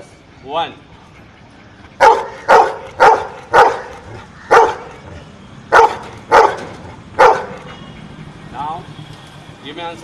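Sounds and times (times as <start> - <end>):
dog barking: 2.0 - 5.0, 5.7 - 7.7.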